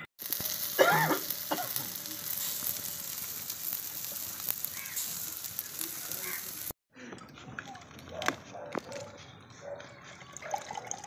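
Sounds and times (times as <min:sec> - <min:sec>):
meat sizzling on grill: 0:00.0 - 0:06.8.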